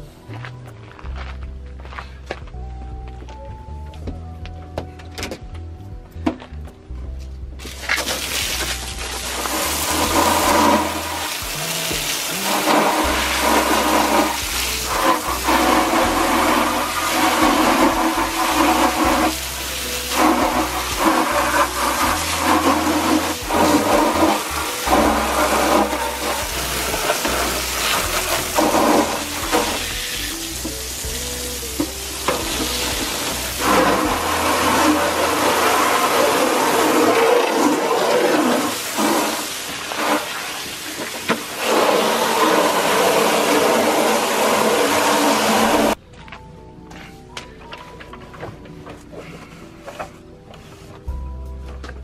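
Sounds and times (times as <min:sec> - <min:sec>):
background music with bass: 0:00.0 - 0:52.0
water spraying hard: 0:07.6 - 0:46.0.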